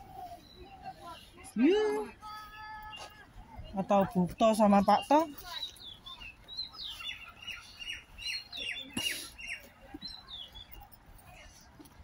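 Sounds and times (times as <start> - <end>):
small bird chirping: 3.6 - 10.9.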